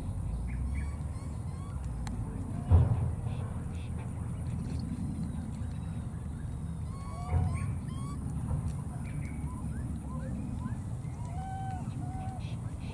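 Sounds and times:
steady low rumble: 0.0 - 12.9
high chirping animal calls: 0.5 - 1.9, 6.4 - 12.9.

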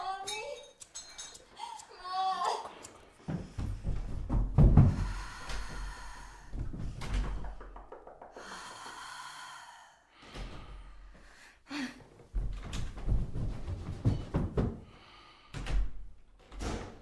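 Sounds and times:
person gasping and breathing hard: 1.5 - 7.4, 8.4 - 12.1.

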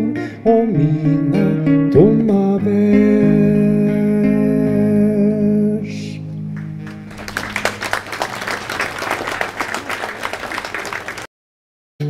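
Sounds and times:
guitar chord ringing: 0.0 - 7.8
audience applauding: 6.6 - 11.3.

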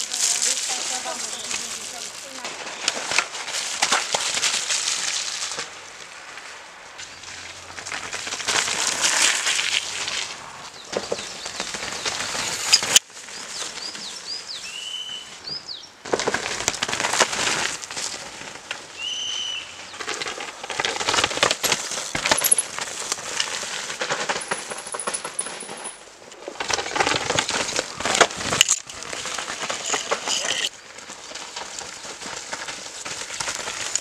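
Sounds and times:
bike tyres crunching on dirt: 0.0 - 34.0
bike chains rattling: 21.8 - 26.2, 26.8 - 30.7.

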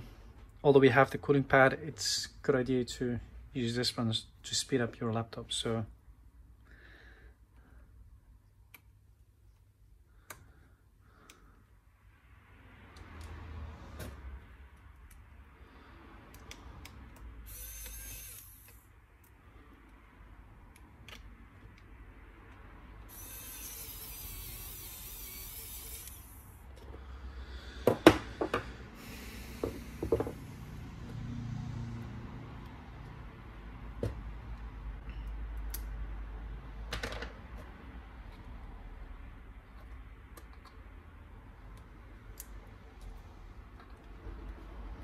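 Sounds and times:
electric screwdriver whirring: 17.5 - 18.8, 23.1 - 26.6.

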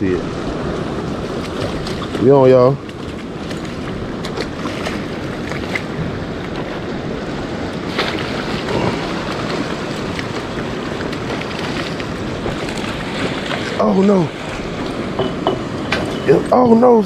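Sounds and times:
waves: 0.0 - 17.0
wind: 0.0 - 17.0
wind buffeting microphone: 0.0 - 17.0.

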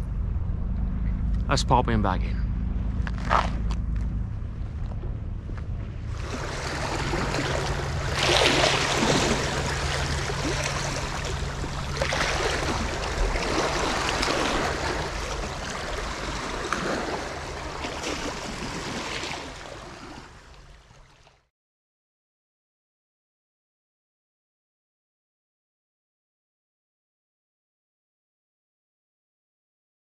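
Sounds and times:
waves lapping over rocks: 6.1 - 21.3.

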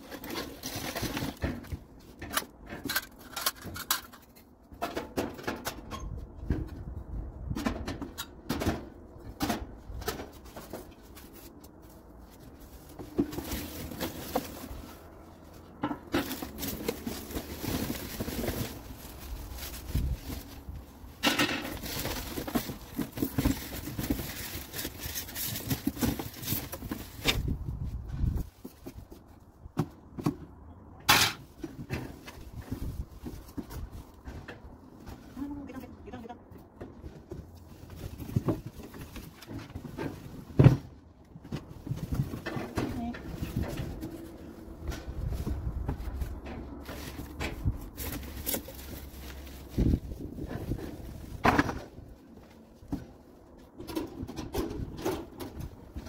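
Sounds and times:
knocks and clatter of metal parts: 0.0 - 11.6, 12.3 - 35.4, 36.6 - 56.0
rustling: 10.2 - 29.5, 37.1 - 53.7.

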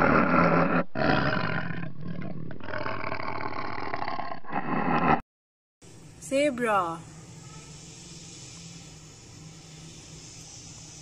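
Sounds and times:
lion roaring: 0.0 - 5.2.

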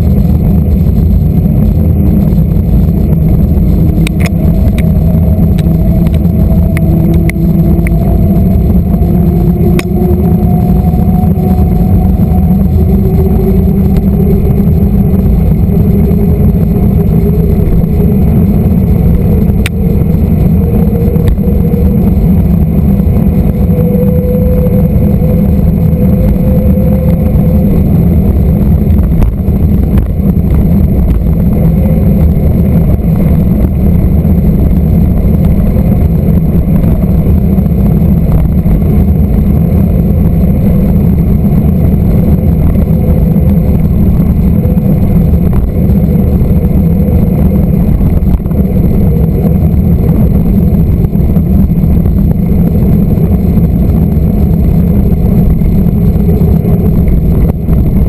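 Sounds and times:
wind rumble on microphone: 0.0 - 58.0.

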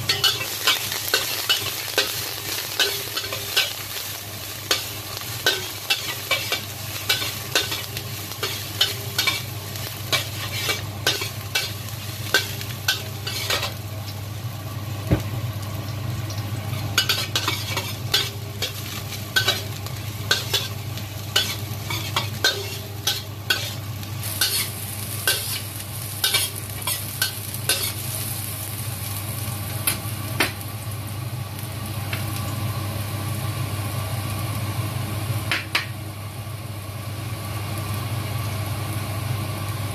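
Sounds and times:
steady low hum: 0.0 - 32.1
light frying sizzle: 0.0 - 39.9
metal spatula scraping wok: 4.7 - 9.5, 10.1 - 13.8, 17.0 - 19.7, 20.3 - 28.0.

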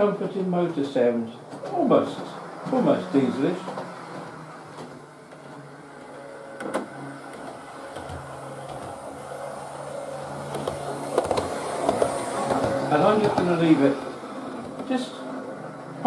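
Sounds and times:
model train motor humming: 2.0 - 16.0.

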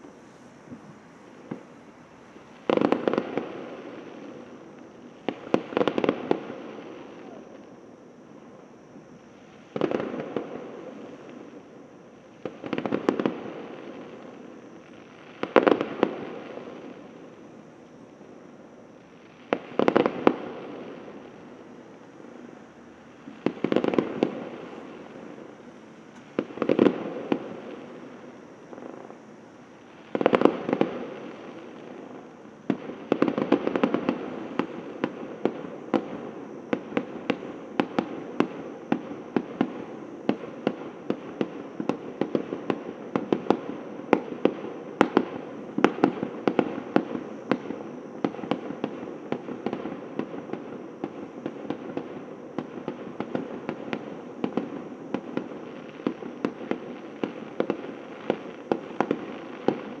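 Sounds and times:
fireworks bangs and cracks: 0.7 - 7.4, 19.4 - 29.2, 29.9 - 60.0
loud firework burst: 19.0 - 60.0.

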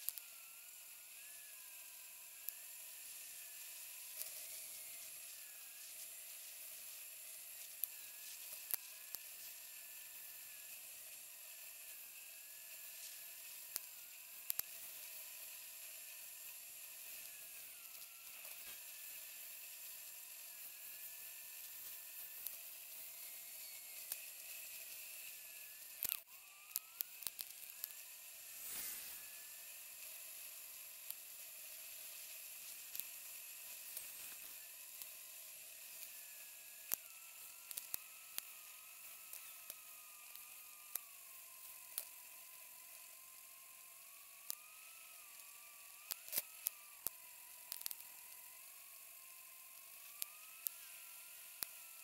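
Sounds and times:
faint steady hiss: 0.0 - 52.0
thin wavering high whine: 0.0 - 52.0.

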